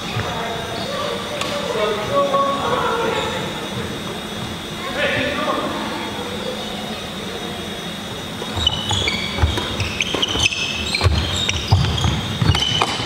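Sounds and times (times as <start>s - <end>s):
shoes squeaking: 6.2s - 13.0s
rackets hitting shuttlecock: 9.4s - 13.0s.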